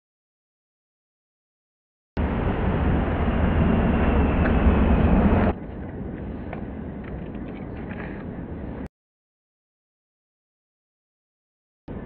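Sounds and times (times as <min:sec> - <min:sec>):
low rumble: 0:02.2 - 0:08.9.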